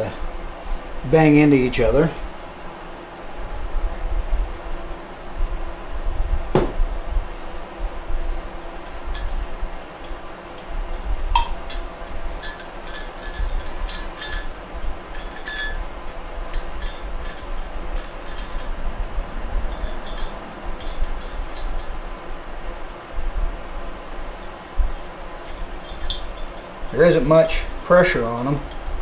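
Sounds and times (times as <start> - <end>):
steady low hum: 0.0 - 29.0
metal parts clinking: 8.8 - 10.7, 11.4 - 18.9, 19.7 - 22.0, 25.4 - 27.6.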